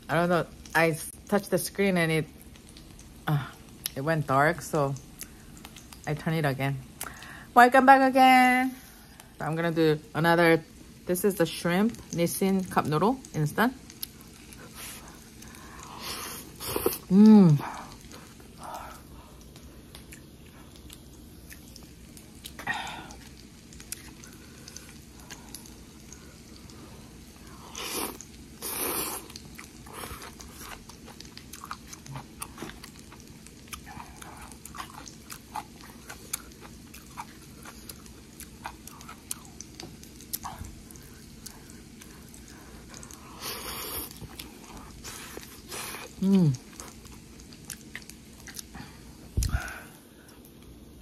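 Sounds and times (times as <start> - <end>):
person chewing noodles: 13.9 - 50.5.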